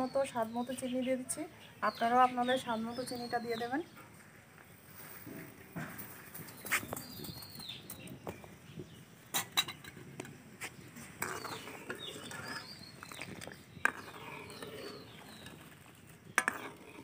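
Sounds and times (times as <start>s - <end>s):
birds chirping faintly: 0.0s - 17.0s
metal ladle scraping a pan: 11.0s - 17.0s.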